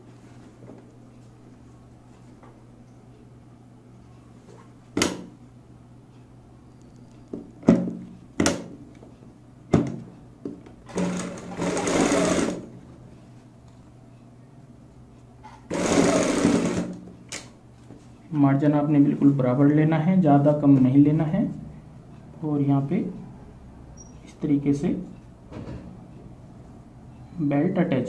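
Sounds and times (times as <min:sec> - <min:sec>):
sewing machine stitching: 0:10.9 - 0:12.7, 0:15.7 - 0:17.0.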